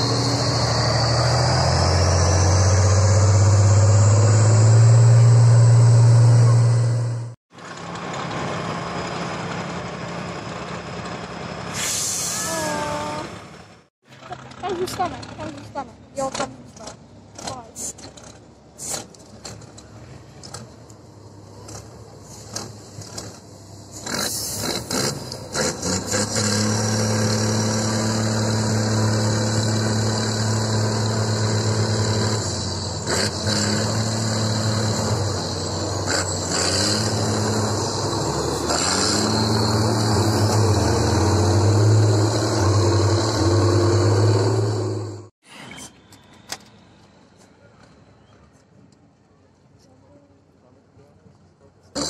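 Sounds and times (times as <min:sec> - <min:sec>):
truck engine revving: 0:00.0 - 0:11.8, 0:21.5 - 0:45.3.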